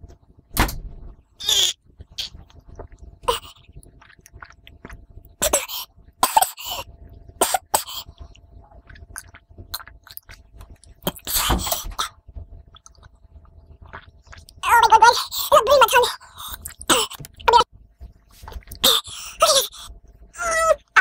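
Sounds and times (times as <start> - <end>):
boy coughing: 5.4 - 6.8.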